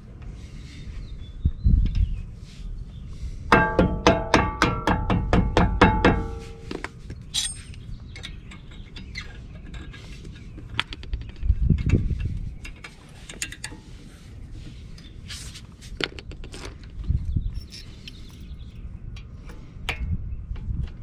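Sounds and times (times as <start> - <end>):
small metal parts clinking: 7.3 - 10.0, 16.0 - 18.6.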